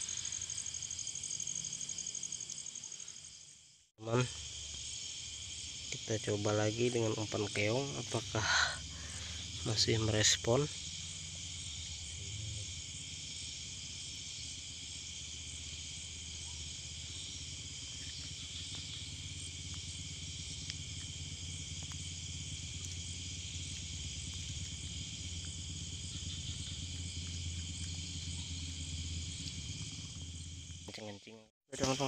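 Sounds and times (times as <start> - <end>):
night insects trilling: 0.0 - 32.0
low steady rumble: 4.2 - 31.0.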